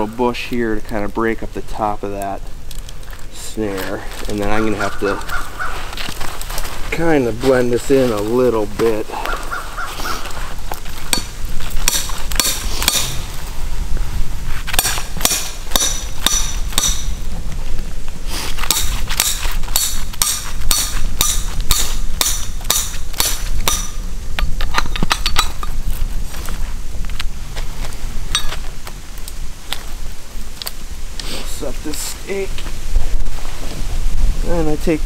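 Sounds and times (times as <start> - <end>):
hammer striking metal stake: 11.1 - 13.3, 14.7 - 17.2, 18.6 - 25.7.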